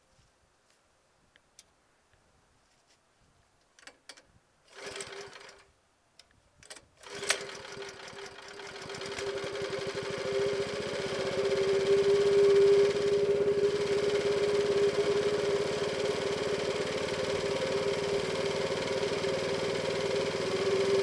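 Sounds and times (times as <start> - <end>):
recoil cord pull: 3.8 - 5.6, 6.6 - 9.3
petrol engine running: 7.0 - 21.0.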